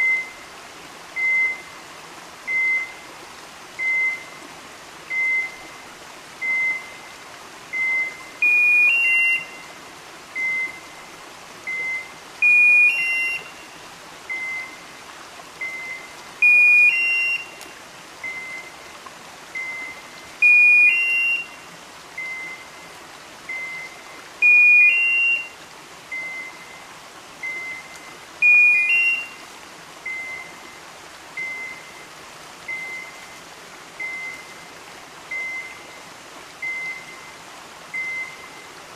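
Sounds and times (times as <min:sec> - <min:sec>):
short steady beeps: 0:00.0 - 0:00.4, 0:01.2 - 0:01.7, 0:02.5 - 0:03.0, 0:03.8 - 0:04.4, 0:05.1 - 0:05.7, 0:06.4 - 0:07.1, 0:07.7 - 0:09.7, 0:10.4 - 0:11.0, 0:11.7 - 0:13.7, 0:14.3 - 0:14.8, 0:15.6 - 0:17.6, 0:18.2 - 0:18.8, 0:19.6 - 0:21.6, 0:22.2 - 0:22.9, 0:23.5 - 0:25.5, 0:26.1 - 0:26.8, 0:27.4 - 0:29.4, 0:30.0 - 0:30.8, 0:31.4 - 0:32.1, 0:32.7 - 0:33.4, 0:34.0 - 0:34.6, 0:35.3 - 0:35.9, 0:36.6 - 0:38.7
two-note rising beep: 0:11.7 - 0:13.6, 0:27.4 - 0:29.4.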